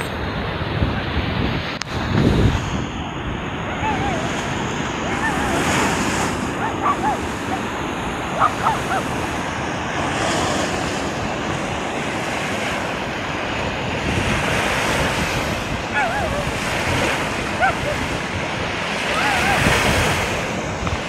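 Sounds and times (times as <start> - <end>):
sea surf breaking on shore: 0.0 - 21.0
wind buffeting microphone: 0.0 - 21.0.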